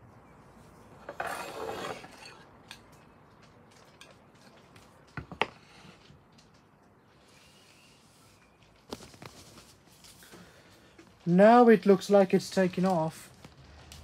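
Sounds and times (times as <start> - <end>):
scraping rustle: 1.0 - 2.5, 7.2 - 11.6.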